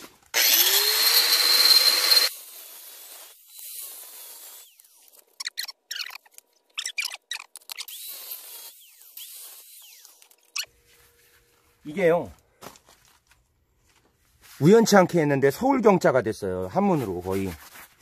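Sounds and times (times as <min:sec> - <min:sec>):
grinder scraping: 0:00.0 - 0:10.8
angle grinder cutting ceramic: 0:00.3 - 0:10.7.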